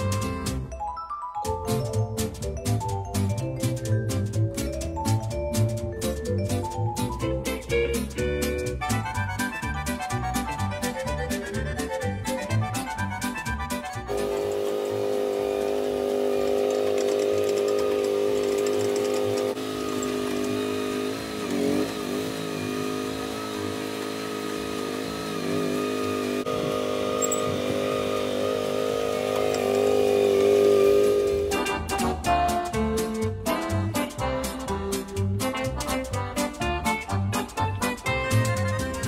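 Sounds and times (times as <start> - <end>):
small gasoline engine running: 8.2 - 32.3.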